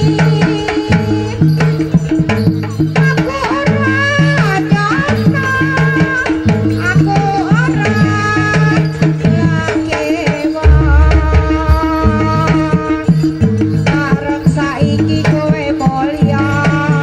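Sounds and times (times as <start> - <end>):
hand drums: 0.0 - 17.0
woman singing into microphone: 3.1 - 13.3, 13.9 - 17.0
low metal tones: 10.6 - 13.5
deep low boom: 10.7 - 12.6.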